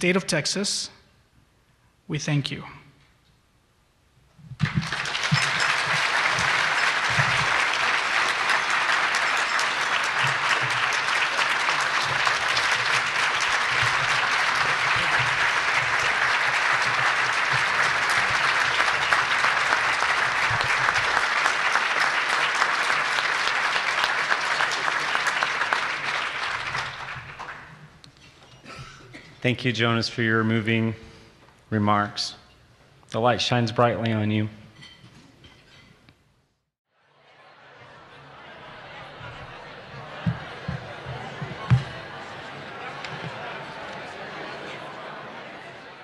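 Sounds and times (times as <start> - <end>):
audience applauding: 4.6 - 27.9, 37.3 - 46.0.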